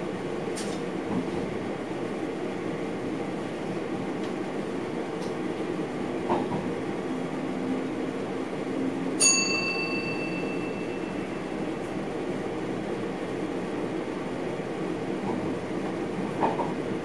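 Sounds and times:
train running noise: 0:00.0 - 0:17.0
bell-like ding: 0:09.2 - 0:11.4.

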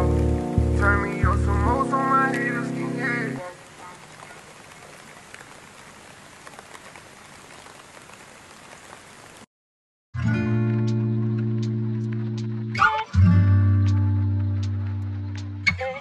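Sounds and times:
backing track music: 0:00.0 - 0:03.4, 0:10.2 - 0:16.0
strummed guitar music: 0:00.0 - 0:03.4, 0:10.2 - 0:16.0
faint hiss with crackles: 0:00.0 - 0:09.5.

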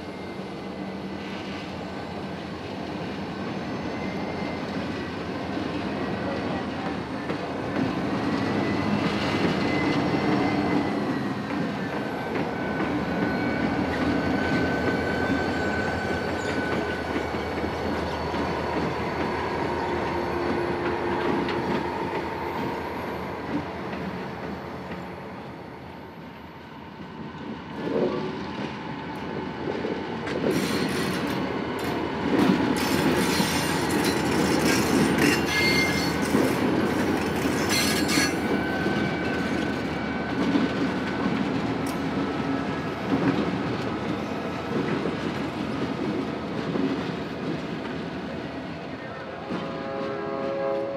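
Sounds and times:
freight train rumbling past: 0:00.0 - 0:50.9
wheels squealing: 0:32.8 - 0:39.6.

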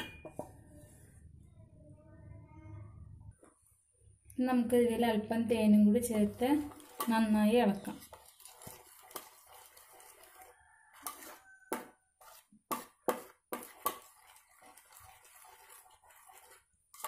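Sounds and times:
spoon stirring thick jam: 0:05.7 - 0:17.0.

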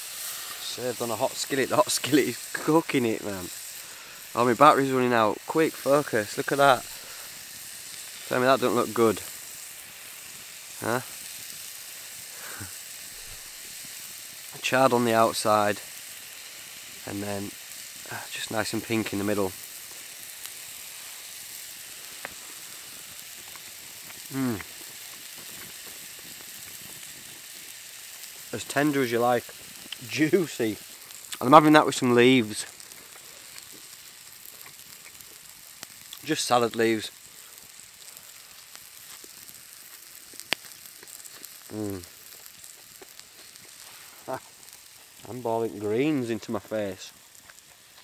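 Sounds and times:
steak sizzling in skillet: 0:00.0 - 0:48.0
man humming low: 0:24.3 - 0:24.7.

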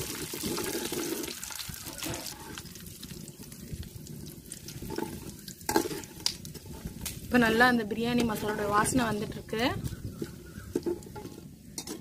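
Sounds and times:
spices sizzling in hot oil: 0:00.0 - 0:12.0
metal ladle stirring: 0:04.4 - 0:07.0.

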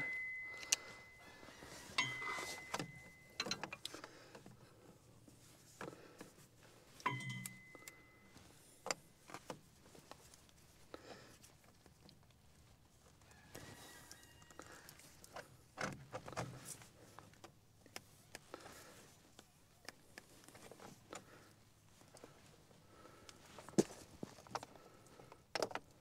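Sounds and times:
metal wrench clinking on filter: 0:02.0 - 0:03.8, 0:07.0 - 0:07.9.

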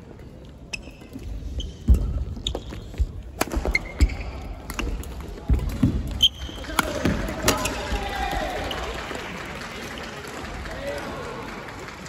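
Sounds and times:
shoes squeaking on wooden floor: 0:00.6 - 0:04.6
rackets hitting shuttlecock: 0:01.8 - 0:07.9.

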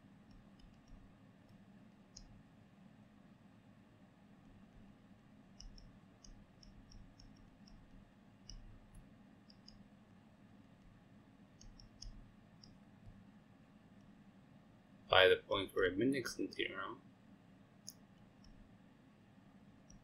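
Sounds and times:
low steady hum: 0:00.0 - 0:20.0
stylus tapping tablet: 0:00.3 - 0:02.3, 0:05.5 - 0:09.8, 0:11.6 - 0:13.2.

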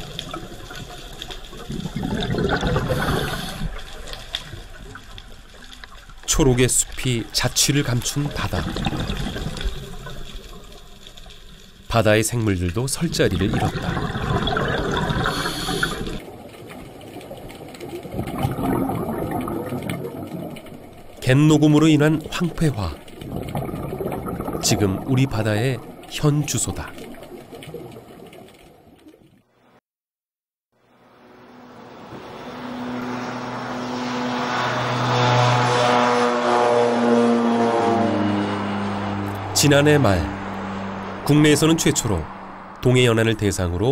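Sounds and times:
underwater rushing bubbling water: 0:00.0 - 0:29.5
propeller airplane taking off: 0:31.0 - 0:42.8.

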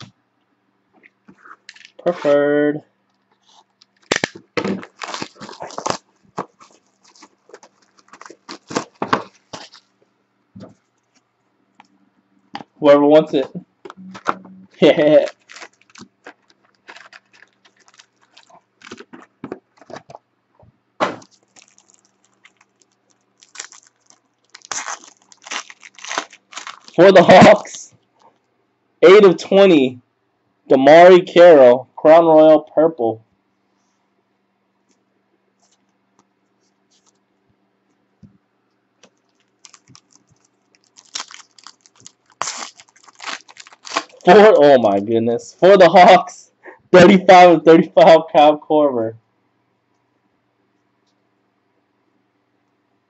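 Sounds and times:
cellophane crinkling: 0:03.4 - 0:10.0, 0:14.2 - 0:20.2, 0:21.2 - 0:28.4, 0:39.0 - 0:44.5.

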